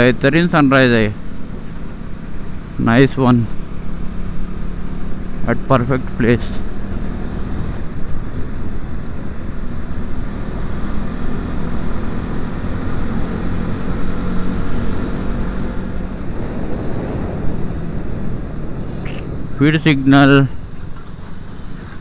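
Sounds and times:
motorcycle engine running: 0:00.0 - 0:22.0
wind rush over microphone: 0:13.6 - 0:22.0.

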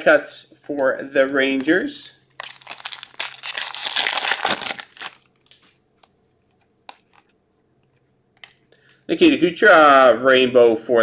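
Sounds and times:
foil wrapper crinkling: 0:02.4 - 0:06.1.

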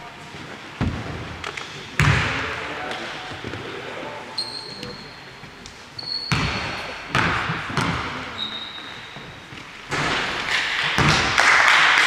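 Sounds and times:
basketball bouncing on gym floor: 0:02.0 - 0:02.4, 0:06.0 - 0:08.4, 0:09.0 - 0:11.5
short high squeaks: 0:04.4 - 0:05.3, 0:06.0 - 0:06.3, 0:08.4 - 0:09.2.

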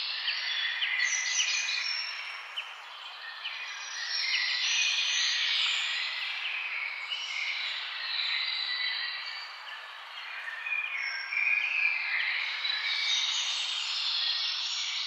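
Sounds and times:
songbirds chirping: 0:00.0 - 0:15.0.

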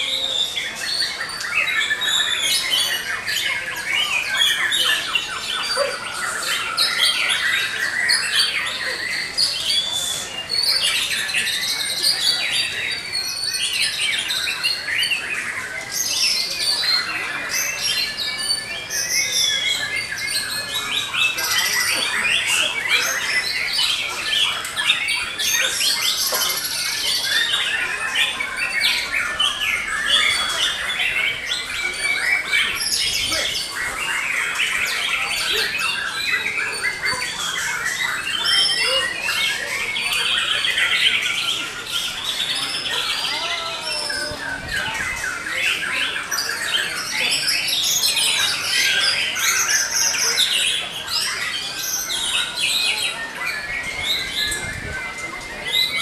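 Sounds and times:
birds singing whistles and trills: 0:00.0 - 0:56.0.

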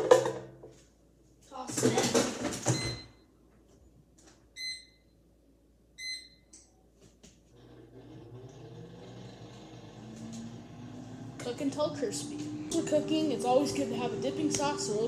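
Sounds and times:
air fryer fan humming: 0:07.5 - 0:15.0.

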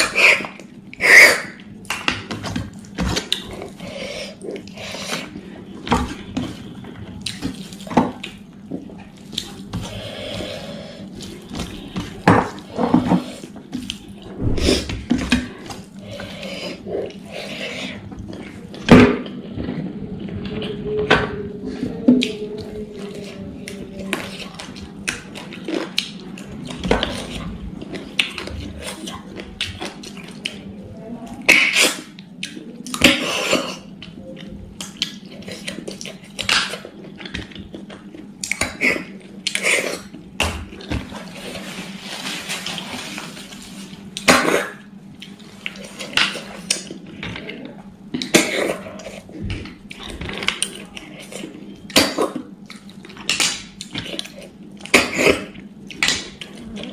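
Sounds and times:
chewing: 0:00.0 - 0:20.8, 0:21.6 - 0:41.8, 0:42.6 - 0:56.9.

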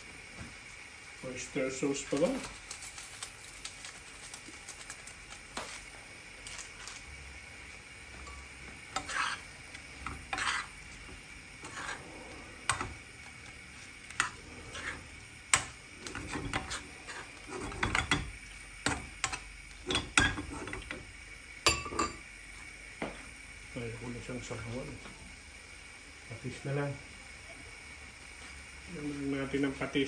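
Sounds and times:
food sizzling: 0:00.0 - 0:30.0
spoon scraping a frying pan: 0:08.2 - 0:11.0, 0:11.6 - 0:13.4, 0:14.0 - 0:21.0.

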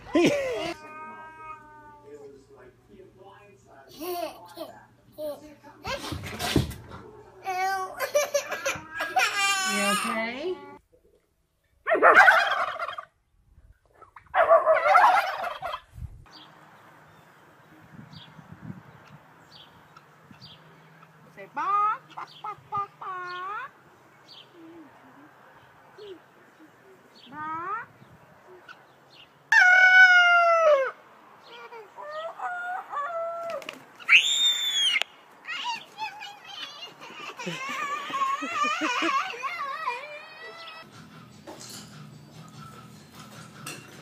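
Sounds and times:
turkeys gobbling: 0:11.9 - 0:13.1, 0:14.0 - 0:15.9, 0:21.7 - 0:23.8
rooster crowing: 0:29.5 - 0:31.0.

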